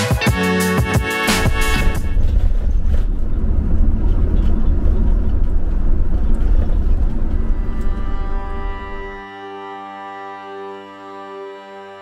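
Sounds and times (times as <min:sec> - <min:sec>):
vehicle engine and road noise: 0:01.8 - 0:09.2.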